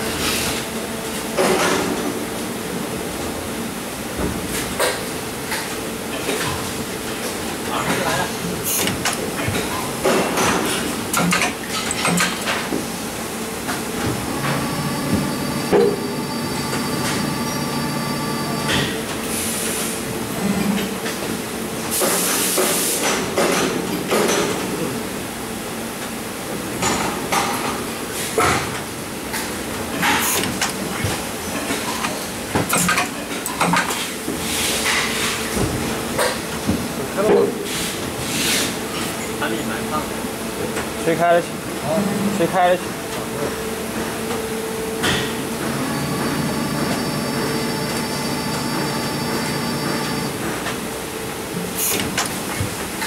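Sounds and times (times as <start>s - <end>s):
machine hum and hiss: 0.0s - 53.0s
machine humming: 13.2s - 18.8s, 44.6s - 51.2s.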